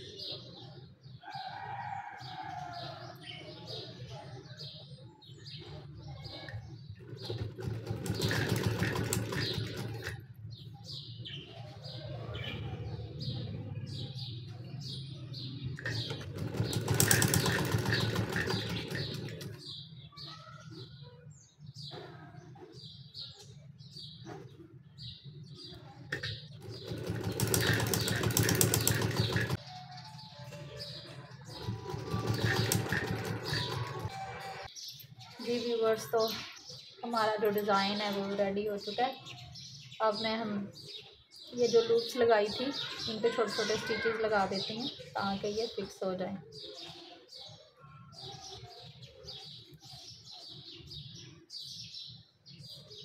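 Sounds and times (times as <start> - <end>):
sewing machine needle clicking: 15.9 - 19.6, 26.8 - 29.6.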